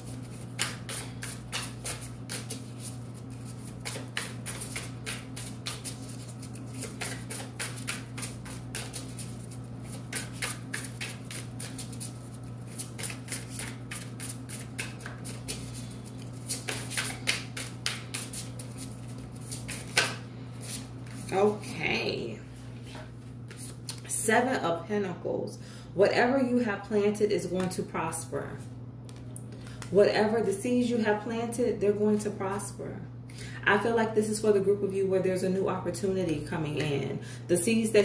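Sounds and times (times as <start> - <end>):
cards being shuffled: 0.0 - 21.3
steady low hum: 0.0 - 38.0.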